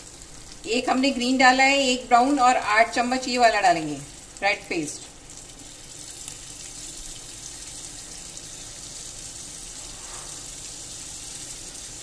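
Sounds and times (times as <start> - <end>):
tomato paste sizzling in hot oil: 0.0 - 12.0.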